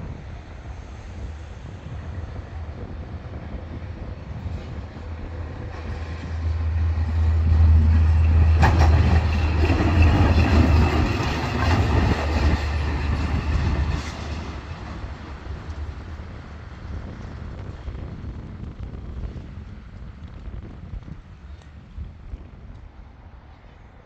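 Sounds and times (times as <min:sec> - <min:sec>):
diesel locomotive engine hum: 0:00.0 - 0:24.0
wheels clicking over rail joints: 0:07.8 - 0:16.3.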